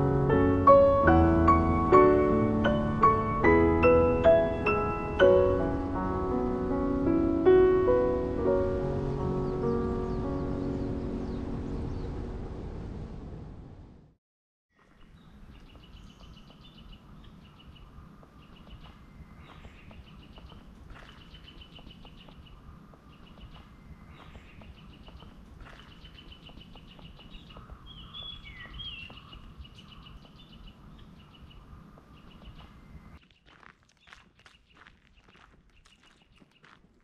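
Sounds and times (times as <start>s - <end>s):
background music: 0.0s - 12.0s
birds chirping: 7.4s - 12.6s, 14.8s - 36.9s.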